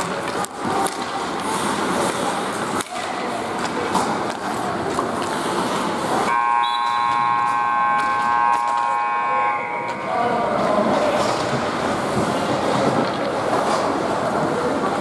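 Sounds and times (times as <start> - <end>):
ice rink play noise: 0.0 - 15.0
scoreboard horn blaring: 6.3 - 10.2.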